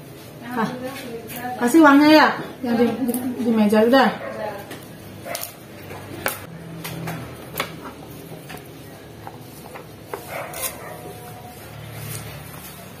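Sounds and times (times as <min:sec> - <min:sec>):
knife cutting spring onions: 0:09.3 - 0:13.0.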